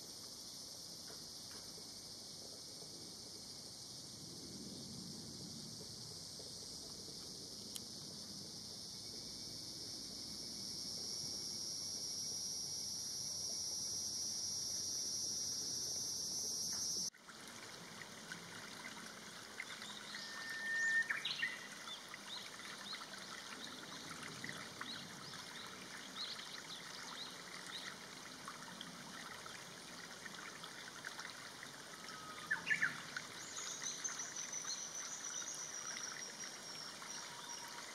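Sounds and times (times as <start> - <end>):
cicadas chorus: 0.0 - 37.9
stream trickling over stones: 17.1 - 37.9
long falling high bird call: 20.1 - 21.6.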